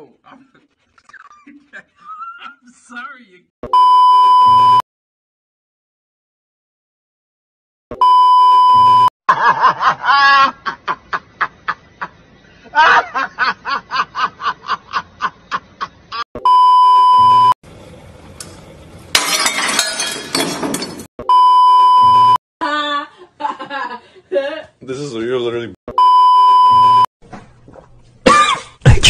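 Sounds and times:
test tone beep: 0:25.9 - 0:27.0.

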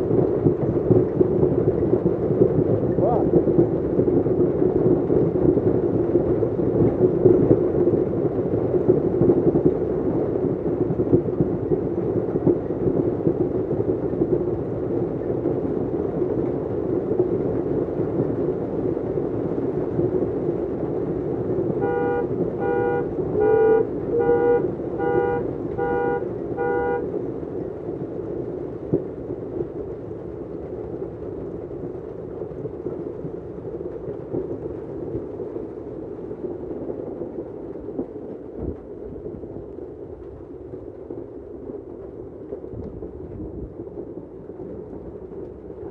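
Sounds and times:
heavy hail pelting pavement and cars: 0:00.0 - 0:45.9
car horn honking: 0:21.8 - 0:27.1.

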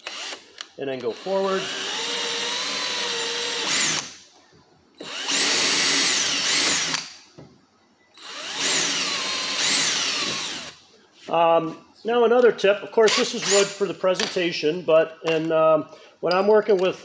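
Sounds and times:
cordless drill boring into wood: 0:00.0 - 0:00.4, 0:01.0 - 0:04.2, 0:05.0 - 0:07.2, 0:08.2 - 0:10.8, 0:13.1 - 0:13.7.

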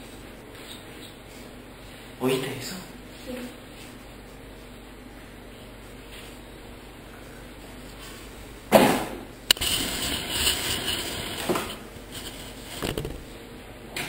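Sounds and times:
camera knocking on hard floor: 0:12.8 - 0:13.3
loud thump: 0:12.8 - 0:13.3.

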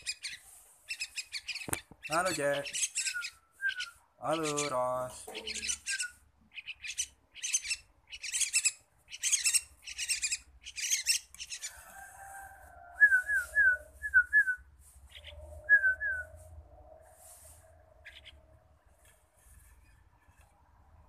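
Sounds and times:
harsh buzzy bird chirps: 0:00.0 - 0:04.8, 0:05.4 - 0:11.7
down-slurred whistled bird notes: 0:02.8 - 0:04.0, 0:05.5 - 0:06.2, 0:13.0 - 0:16.4.

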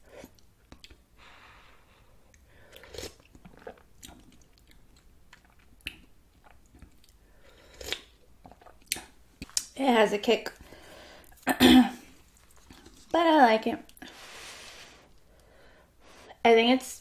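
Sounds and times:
wet chewing of noodles: 0:02.2 - 0:09.7, 0:12.1 - 0:13.1.

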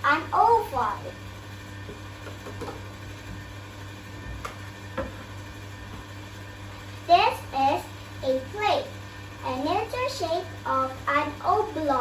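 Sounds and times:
steady low hum: 0:00.0 - 0:12.0
knocks and taps of toy and plate: 0:01.9 - 0:02.8.

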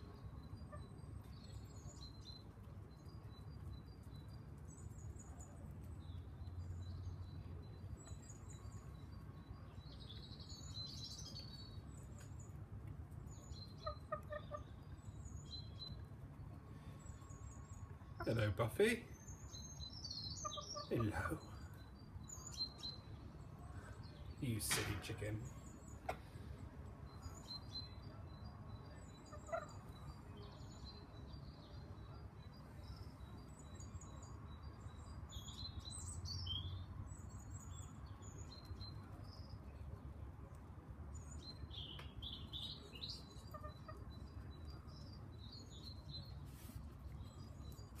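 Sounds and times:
birds chirping: 0:00.0 - 0:48.0.

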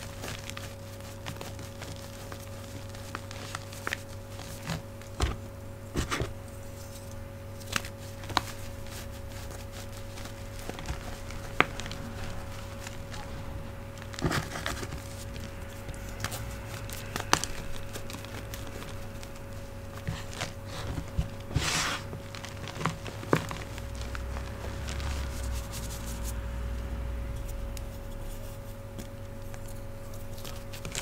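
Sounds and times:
hands crumbling powdered chalk: 0:00.0 - 0:26.6
fridge humming: 0:00.0 - 0:31.0.

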